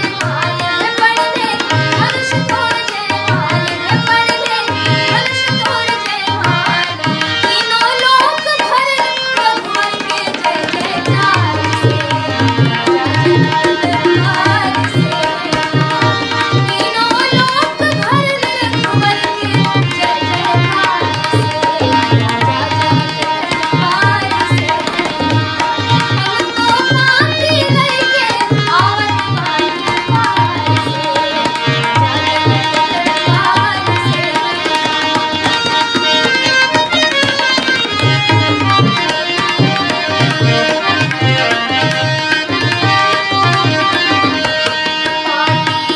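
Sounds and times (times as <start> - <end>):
girl singing: 0.0 - 36.1, 45.0 - 45.9
hand drum rhythm: 9.4 - 45.9.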